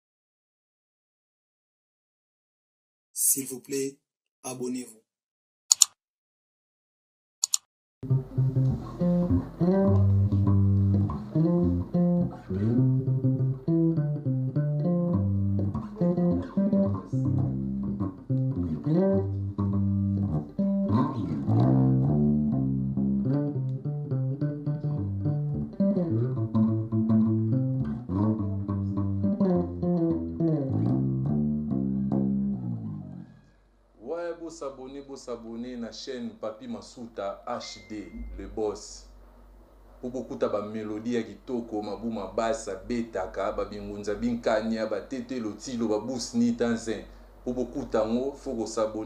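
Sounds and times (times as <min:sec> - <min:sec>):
electric bass guitar groove: 0:08.0 - 0:33.2.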